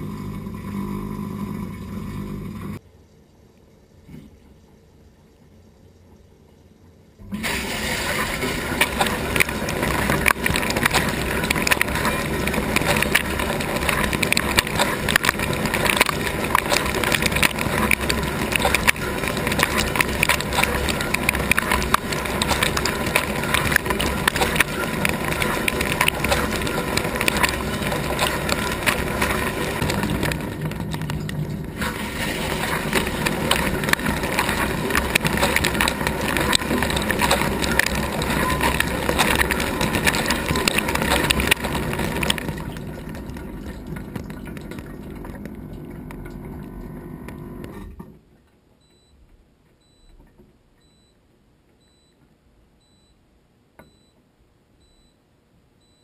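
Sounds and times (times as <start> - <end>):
dishwasher water jets spraying: 7.3 - 47.7.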